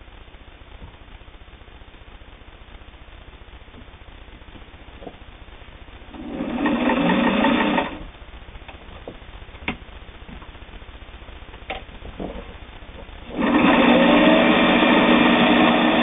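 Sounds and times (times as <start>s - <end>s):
sewing machine running: 6.1s - 8.1s, 13.3s - 16.0s.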